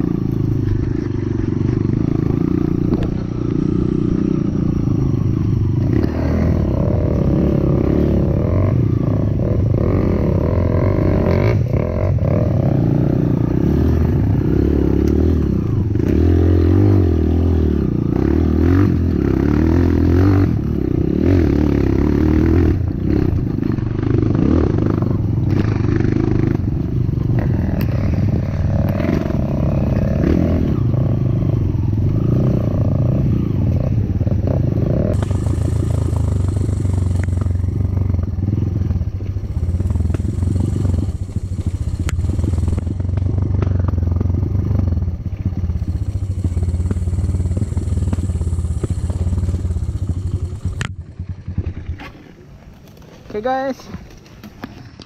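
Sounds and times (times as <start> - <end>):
motorcycle engine revving: 0.0 - 55.0
bike clattering over rough ground: 50.8 - 55.0.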